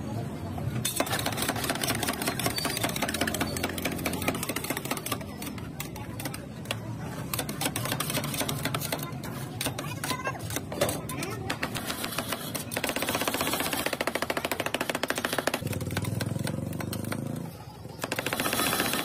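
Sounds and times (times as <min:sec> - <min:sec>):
metal spatulas chopping on steel plate: 0:00.9 - 0:12.8.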